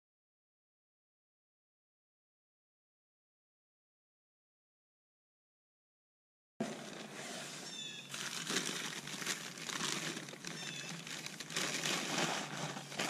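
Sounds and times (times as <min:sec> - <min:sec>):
newspaper crinkling: 0:06.6 - 0:13.0.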